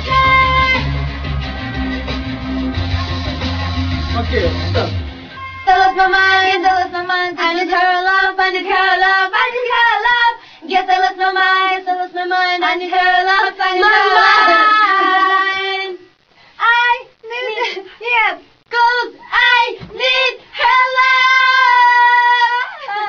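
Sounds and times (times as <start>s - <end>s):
woman singing unaccompanied: 5.6s - 23.0s.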